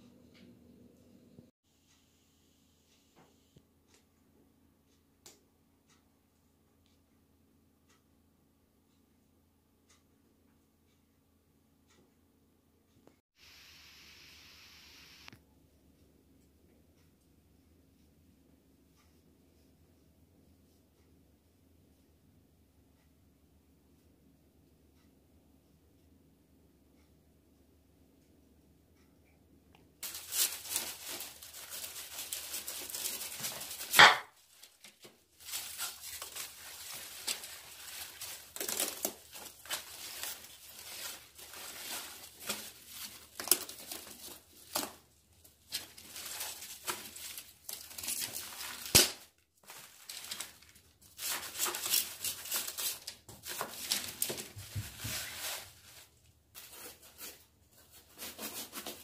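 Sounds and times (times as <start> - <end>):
knife cutting cabbage crunching: 30.0 - 45.0
sharp crack: 33.8 - 34.4, 48.8 - 49.3.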